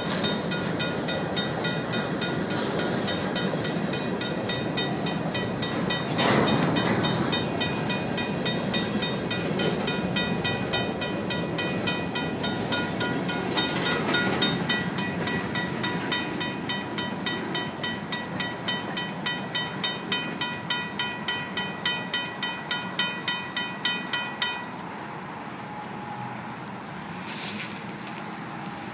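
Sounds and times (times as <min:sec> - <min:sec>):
freight train rolling past: 0:00.0 - 0:28.9
mechanical crossing bell ringing: 0:04.2 - 0:24.8.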